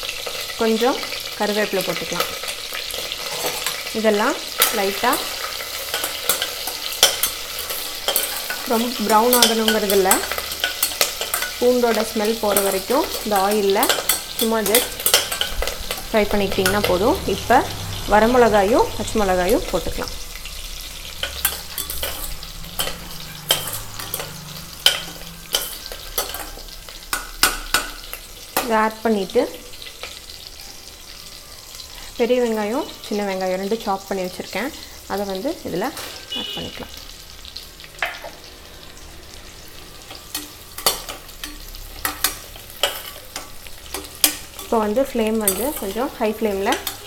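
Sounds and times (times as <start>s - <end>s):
spices sizzling in hot oil: 0.0s - 47.0s
metal spoon scraping pan: 2.0s - 28.8s, 39.7s - 47.0s.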